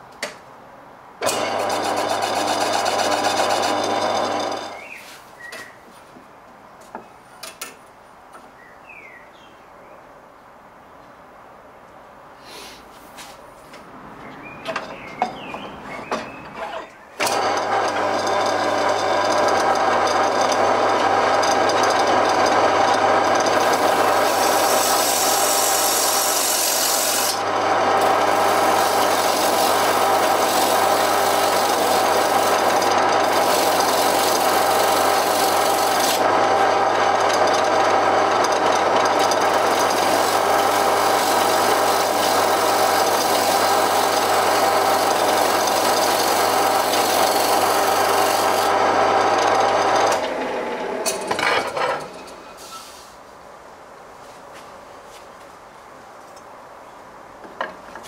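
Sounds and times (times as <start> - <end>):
wood lathe motor hum: 1.2 - 4.8, 17.2 - 51.6
turning tool scraping wood: 1.2 - 5.3, 17.2 - 50.4.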